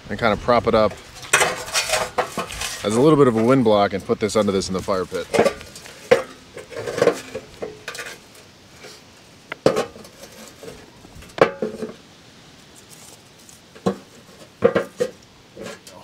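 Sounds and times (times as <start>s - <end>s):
metal shield clanking against rocks: 0.8s - 4.2s, 4.9s - 8.3s, 9.5s - 12.0s, 13.8s - 16.0s.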